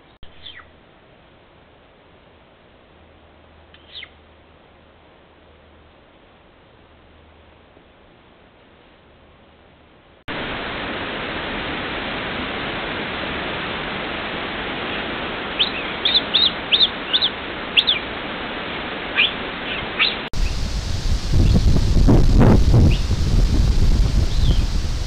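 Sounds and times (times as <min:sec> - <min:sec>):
steady hiss: 0:00.0 - 0:25.0
cougar chirping: 0:03.8 - 0:04.2, 0:15.6 - 0:18.0, 0:19.2 - 0:20.3.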